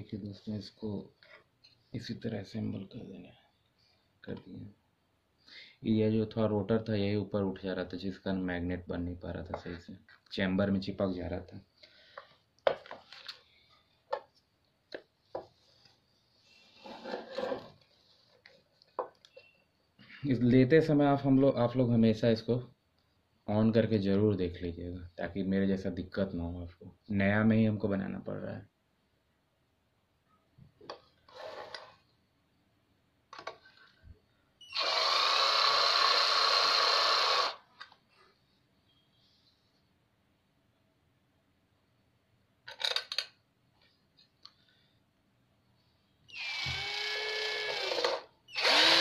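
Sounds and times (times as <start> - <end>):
rustling and scraping: 15.3 - 19.6
power drill driving screw: 34.6 - 37.6, 46.3 - 49.0.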